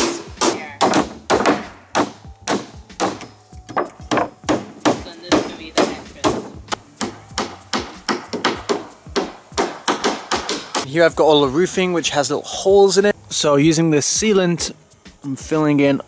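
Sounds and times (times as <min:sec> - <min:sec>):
hammer driving nails into wood: 0:00.0 - 0:10.9.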